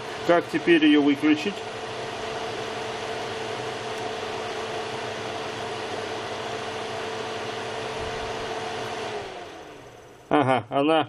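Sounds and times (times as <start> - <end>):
dehydrator fan humming: 0.0 - 10.6.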